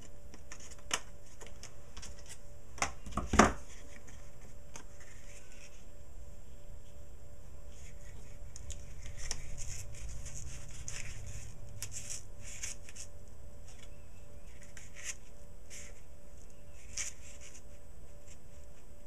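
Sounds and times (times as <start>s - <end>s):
steady low hum: 0.0s - 19.0s
paper rustling and sliding: 3.6s - 5.9s, 7.7s - 13.9s, 14.5s - 16.1s.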